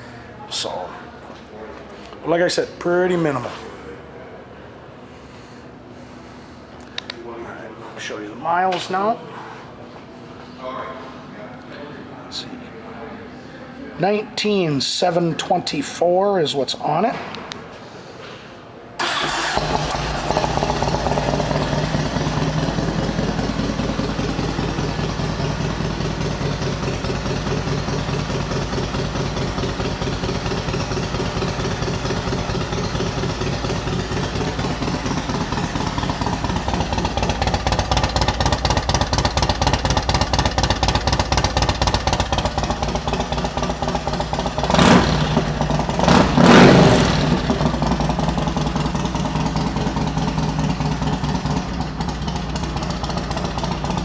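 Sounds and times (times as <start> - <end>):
motorcycle engine idling and revving: 19.1 - 54.0.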